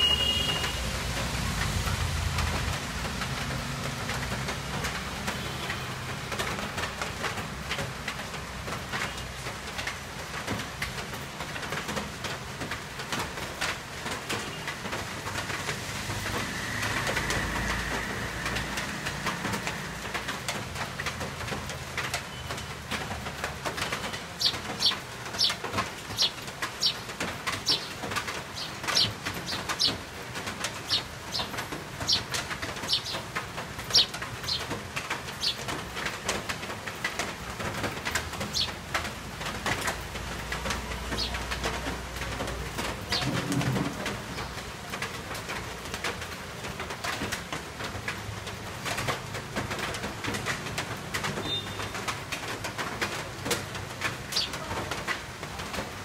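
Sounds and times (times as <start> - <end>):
rain hiss: 0.0 - 56.0
sparrows chirping: 23.7 - 36.1, 38.4 - 38.8, 40.9 - 41.6, 51.4 - 51.9, 54.3 - 54.7.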